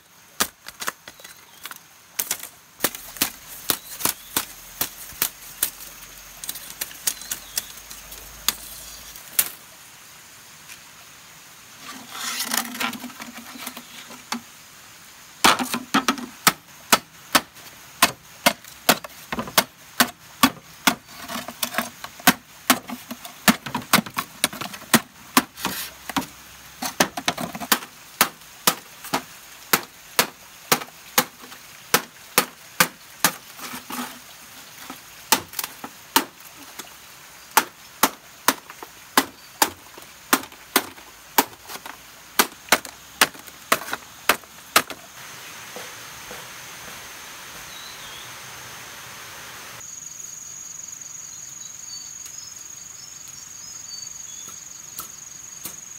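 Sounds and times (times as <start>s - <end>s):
bamboo being chopped: 0.3s - 9.6s, 15.4s - 34.2s, 34.8s - 45.1s.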